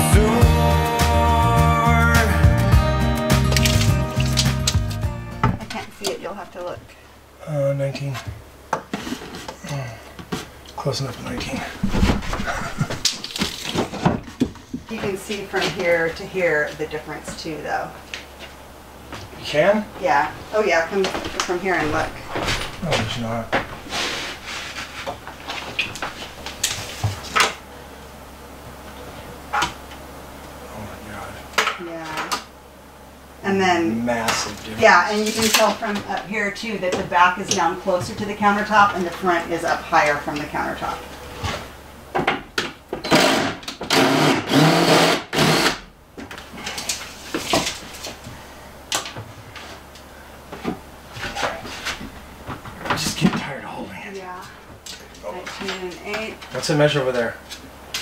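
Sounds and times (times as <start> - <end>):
cordless drill driving screws: 43.0 - 45.8.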